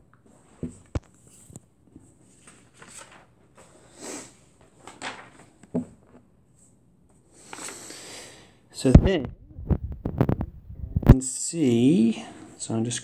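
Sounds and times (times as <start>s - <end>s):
soft rustling: 9.0s - 11.1s.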